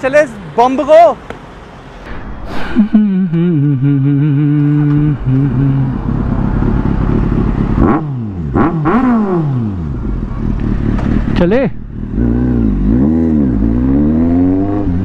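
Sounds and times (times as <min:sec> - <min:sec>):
motorcycle engine revving: 0:03.0 - 0:15.0.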